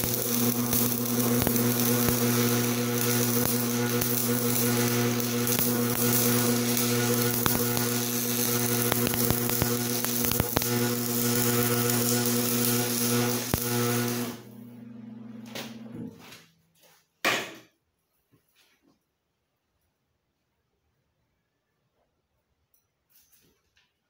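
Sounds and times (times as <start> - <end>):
welding arc crackling hiss: 0.0 - 14.6
welding machine hum: 0.0 - 16.3.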